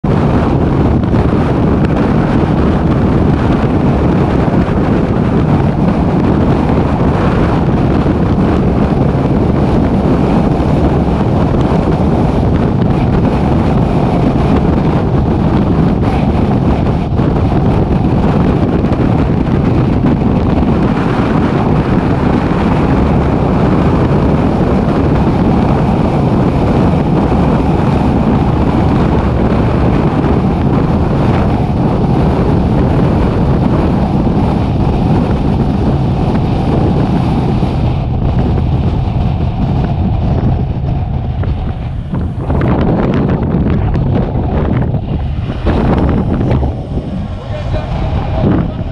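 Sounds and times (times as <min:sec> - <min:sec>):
truck engine: 0:00.0 - 0:48.9
tyre road noise: 0:00.0 - 0:48.9
wind rushing on microphone: 0:00.0 - 0:48.9.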